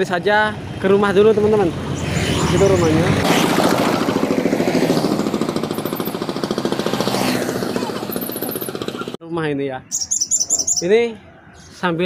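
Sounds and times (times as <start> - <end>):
small motorcycle engine puttering: 3.3 - 9.2.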